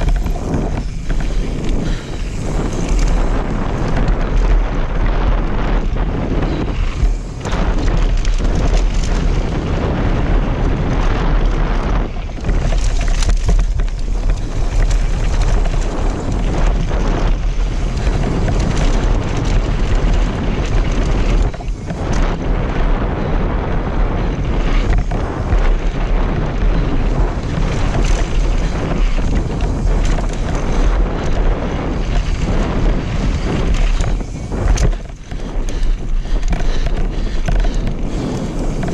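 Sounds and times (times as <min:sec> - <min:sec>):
tyres rushing on gravel: 0:00.0 - 0:05.2, 0:24.3 - 0:38.9
wind buffeting microphone: 0:00.0 - 0:38.9.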